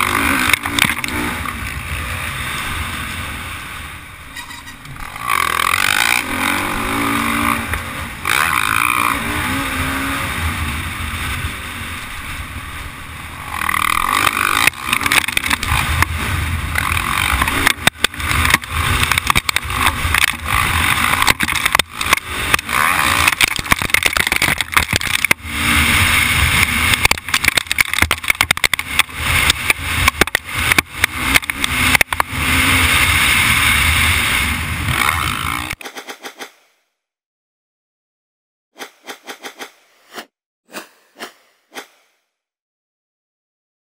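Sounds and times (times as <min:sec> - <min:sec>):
dirt bike engine revving: 0:00.0 - 0:03.8, 0:04.4 - 0:12.4, 0:13.2 - 0:35.8.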